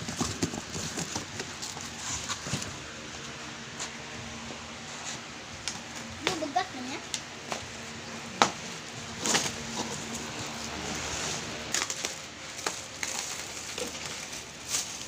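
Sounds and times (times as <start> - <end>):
cardboard knocks and scrapes: 0.0 - 2.8
plastic wrap rustling: 9.2 - 15.0.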